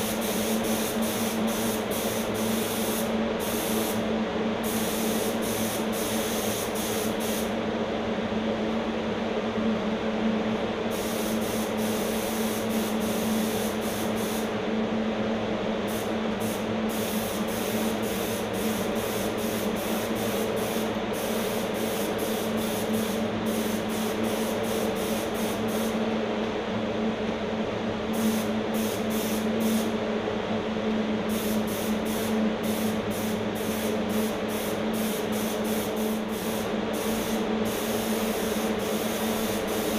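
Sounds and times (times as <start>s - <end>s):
spray gun hissing: 0.0s - 4.0s, 4.6s - 7.5s, 10.9s - 14.5s, 15.9s - 26.0s, 28.2s - 29.9s, 31.3s - 39.9s
air supply motor hum: 0.0s - 39.9s.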